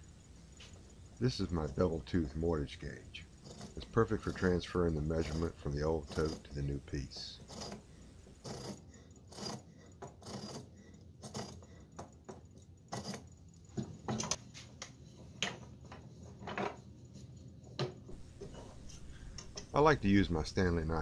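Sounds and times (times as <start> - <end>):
gauge clicking and scraping wood: 0.5 - 15.0, 18.1 - 19.9.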